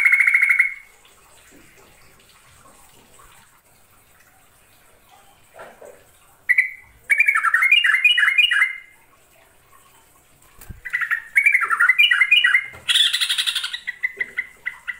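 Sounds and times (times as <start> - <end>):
bird singing bubbly phrases: 0.0 - 0.9, 6.4 - 9.0, 10.6 - 14.9.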